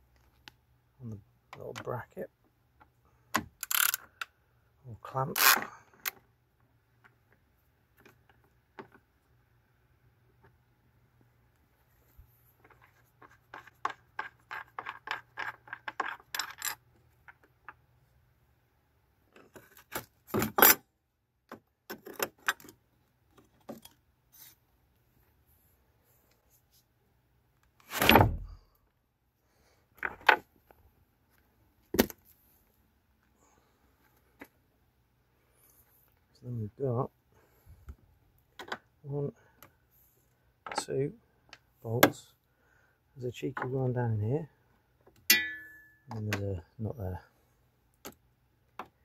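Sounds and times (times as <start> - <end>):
ratchet wrench clicking: 3.6 - 4.0
metallic clinks and rattles: 14.1 - 17.4.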